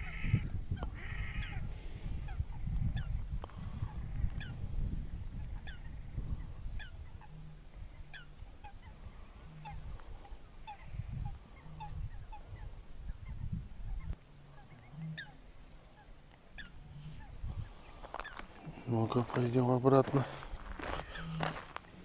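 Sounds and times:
wind on microphone: 0.0s - 15.2s, 16.6s - 18.4s
birds calling: 0.0s - 22.0s.

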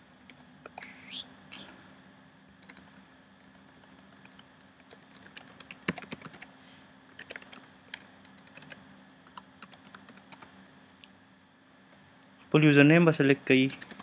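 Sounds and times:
faint steady hum: 0.0s - 14.0s
keyboard typing: 2.6s - 6.5s, 7.1s - 10.5s, 13.7s - 14.0s.

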